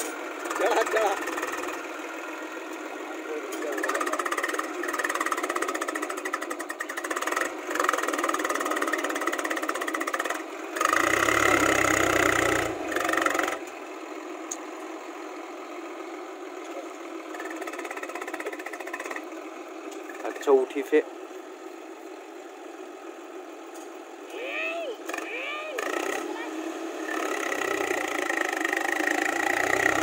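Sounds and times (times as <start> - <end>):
tractor diesel engine knocking: 0.0 - 26.2, 27.1 - 30.0.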